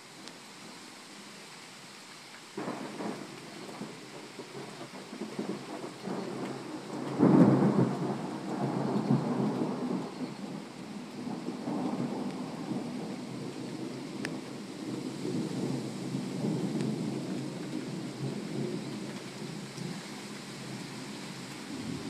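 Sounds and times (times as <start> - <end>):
thunder rumbling: 2.6 - 19.7, 21.6 - 22.0.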